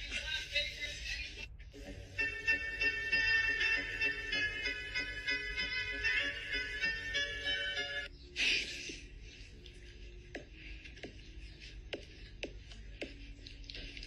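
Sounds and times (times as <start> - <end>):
music: 0.0 - 8.1.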